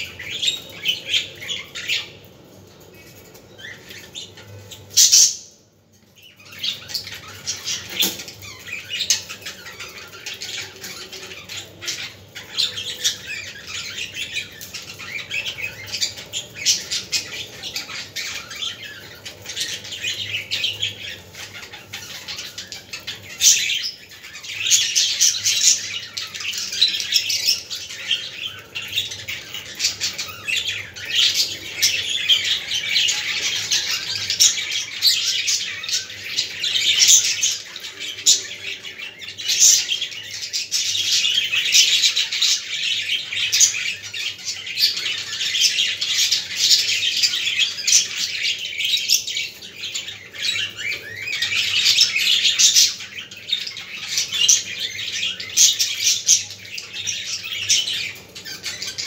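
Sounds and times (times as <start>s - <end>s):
budgerigars chirping and squawking: 0.0s - 59.0s.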